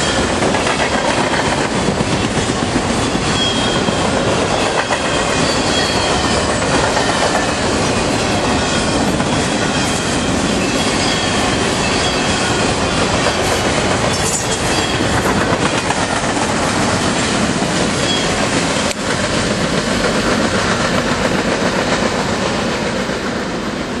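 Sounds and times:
train wheels clattering over rail joints: 0:00.0 - 0:23.5
light wheel squeal: 0:03.2 - 0:15.4, 0:18.0 - 0:18.4.

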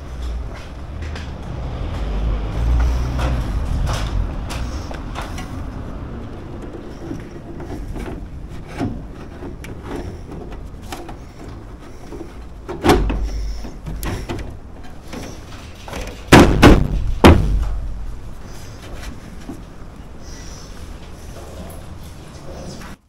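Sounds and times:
metal knocks and scrapes: 0:02.0 - 0:19.7.

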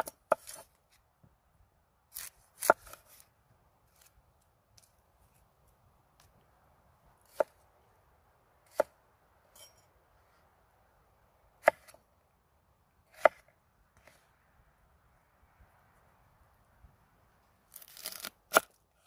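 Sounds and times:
knife chopping on wooden board: 0:11.6 - 0:11.9.

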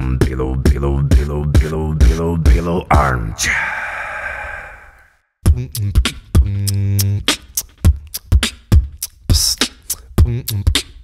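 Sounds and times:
beatboxing kick and snare: 0:00.0 - 0:02.7, 0:05.4 - 0:11.0.

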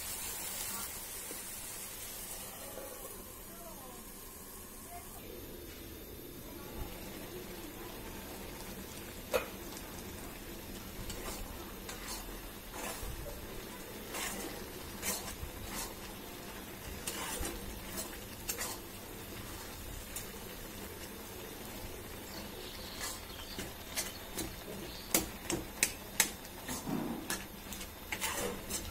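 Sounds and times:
hot pan sizzling: 0:00.0 - 0:28.9
spatula scraping vegetables in pan: 0:10.7 - 0:20.6, 0:22.2 - 0:28.9.

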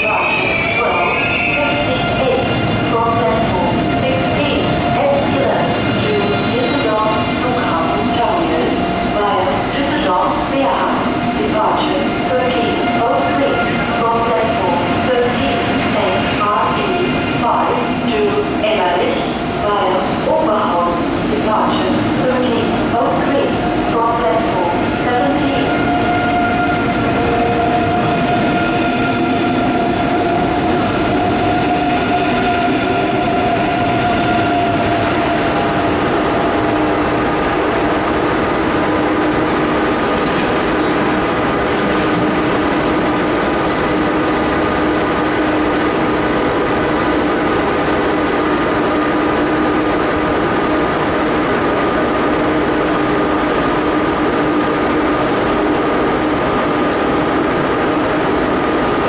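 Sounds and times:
train rail rumble: 0:00.0 - 0:59.0.

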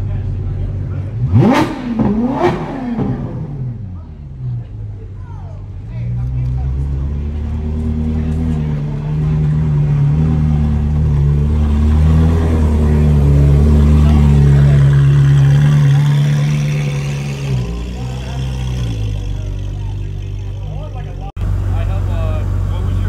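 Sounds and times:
car engine passing by: 0:06.2 - 0:23.0.

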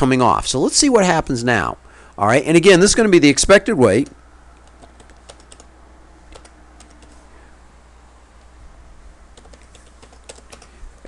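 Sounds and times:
keyboard typing: 0:04.0 - 0:05.7, 0:06.3 - 0:07.2, 0:09.3 - 0:10.8.

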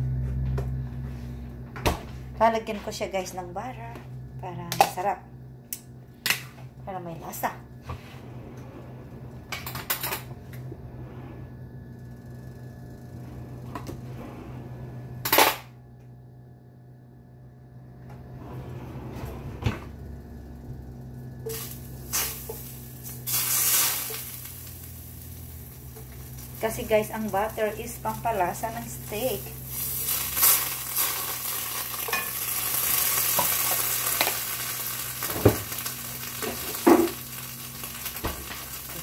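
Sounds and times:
steady low hum: 0:00.0 - 0:39.0
butter hissing in hot pan: 0:21.5 - 0:26.6, 0:29.5 - 0:39.0.

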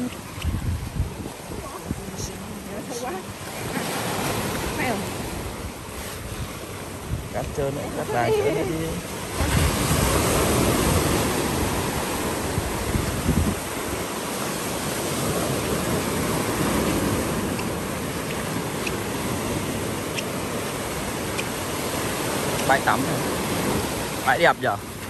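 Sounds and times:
sea surf breaking on beach: 0:00.0 - 0:25.0.

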